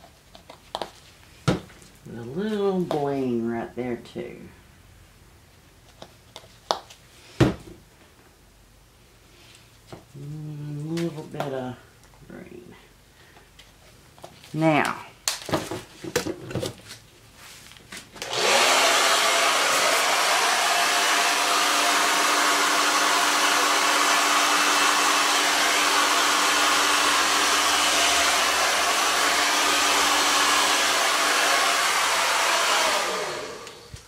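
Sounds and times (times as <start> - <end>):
hair dryer blowing: 18.2 - 34.0.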